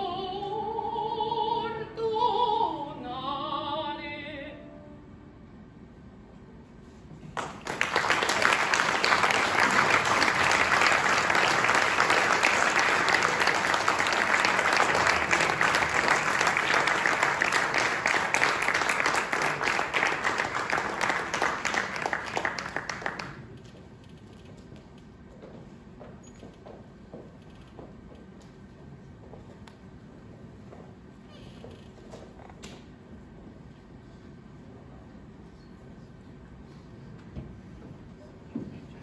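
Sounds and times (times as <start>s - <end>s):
audience applauding: 7.3s - 23.5s.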